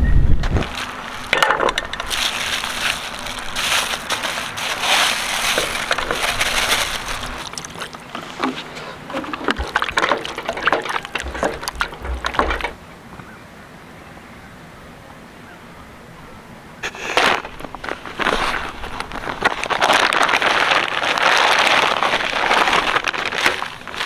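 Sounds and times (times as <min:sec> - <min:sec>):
plastic bag crinkling: 0:00.6 - 0:12.8, 0:16.8 - 0:24.0
wet raw meat squelching: 0:02.0 - 0:12.8.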